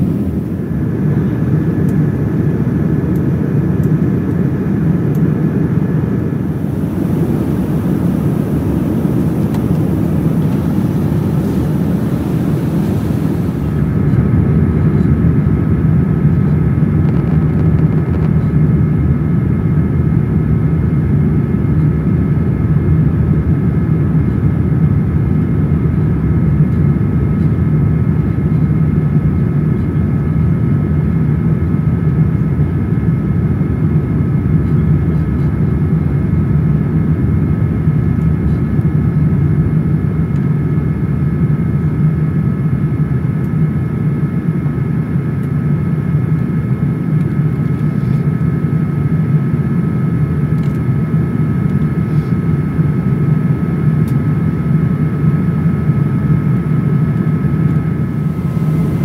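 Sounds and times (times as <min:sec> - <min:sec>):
airliner cabin rumble: 0:00.0 - 0:30.8, 0:55.6 - 0:59.0
thin high whines: 0:06.2 - 0:14.2, 0:57.7 - 0:59.0.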